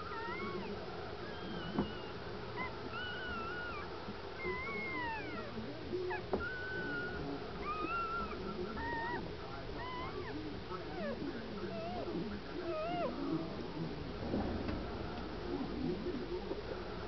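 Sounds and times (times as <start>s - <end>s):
puppy squeaky crying: 0.1s - 9.2s, 9.8s - 12.1s, 12.7s - 13.1s.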